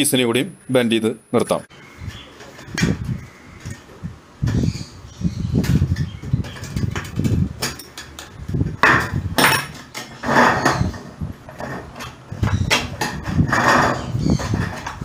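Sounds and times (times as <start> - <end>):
metal sheet flexing and rattling: 5.5 - 15.0.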